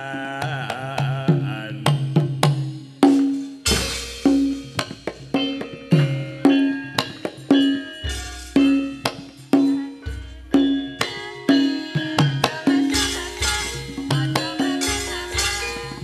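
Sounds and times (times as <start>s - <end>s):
hand drum strokes: 0.0s - 16.0s
sharp clacking strikes: 2.4s - 16.0s.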